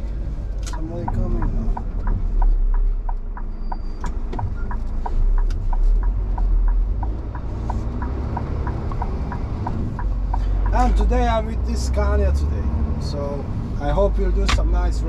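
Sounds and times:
diesel truck engine rumbling: 0:00.0 - 0:15.0
indicator ticking: 0:00.7 - 0:12.2.

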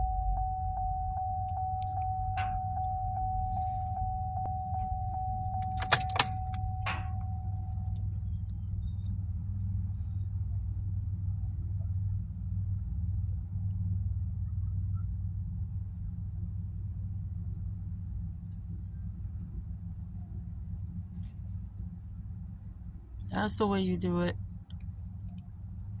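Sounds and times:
car warning chime beeping: 0:00.0 - 0:08.1
steady low rumble: 0:00.0 - 0:26.0
sharp clicks: 0:04.8 - 0:08.6.

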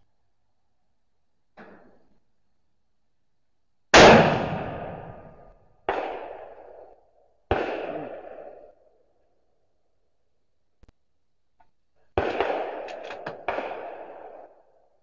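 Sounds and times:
rifle shot: 0:03.9 - 0:06.9, 0:07.5 - 0:08.8, 0:12.2 - 0:14.6.

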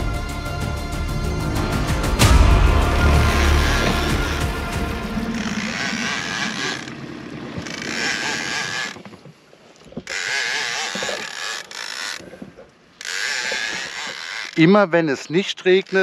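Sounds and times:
fishing reel cranking: 0:05.3 - 0:09.2, 0:09.8 - 0:16.0.

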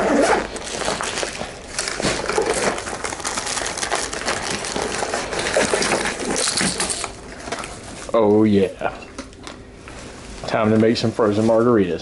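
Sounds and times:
plastic bags and clothing rustling: 0:00.0 - 0:08.7.

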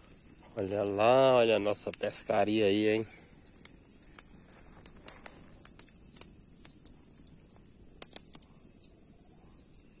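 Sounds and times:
crickets chirping: 0:00.0 - 0:10.0
sharp clicks and snaps: 0:08.0 - 0:08.5.

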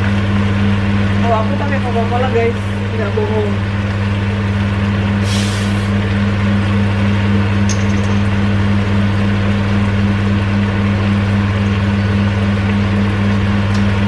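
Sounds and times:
range hood fan humming: 0:00.0 - 0:14.0
bottle opening fizz: 0:05.2 - 0:05.9
pan simmering: 0:05.2 - 0:06.1.

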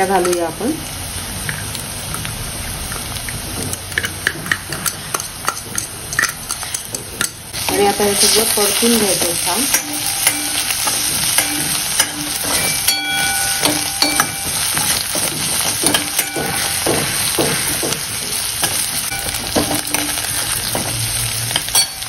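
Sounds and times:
vegetables sizzling in hot oil: 0:00.0 - 0:22.0
steel spoon scraping a pan: 0:04.0 - 0:22.0
metallic ring: 0:09.7 - 0:17.4, 0:18.6 - 0:22.0.

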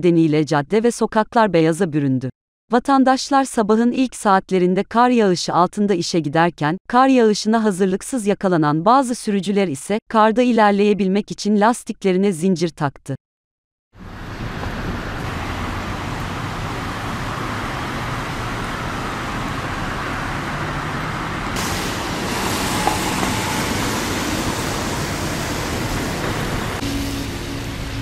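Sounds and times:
street traffic passing: 0:14.0 - 0:28.0.

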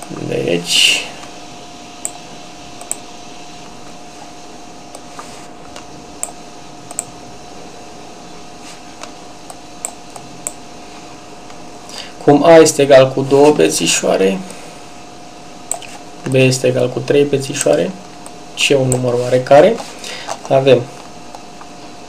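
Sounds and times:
faint constant hum: 0:00.0 - 0:22.0.

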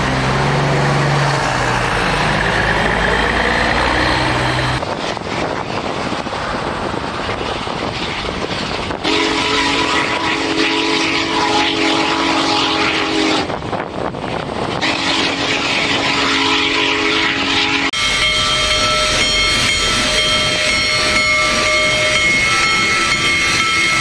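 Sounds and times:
steam locomotive whistle: 0:09.0 - 0:13.6, 0:14.8 - 0:24.0
loud hiss of steam: 0:18.0 - 0:24.0
thin high ringing tones: 0:18.0 - 0:24.0.

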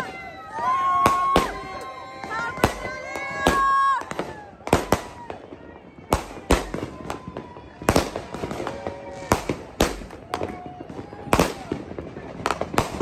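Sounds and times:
fireworks bangs: 0:00.0 - 0:13.0
people shouting: 0:00.0 - 0:13.0.

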